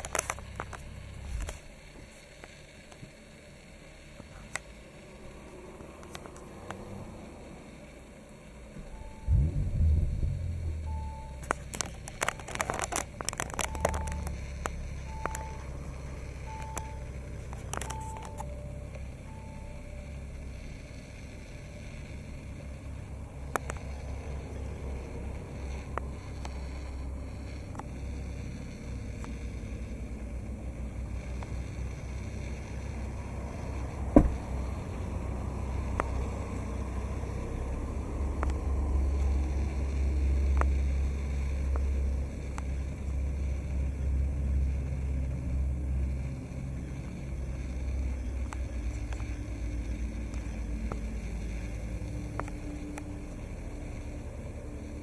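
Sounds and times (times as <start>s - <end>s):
low rumble: 8.6s - 55.0s
car warning chime beeping: 8.8s - 12.6s, 13.4s - 20.8s.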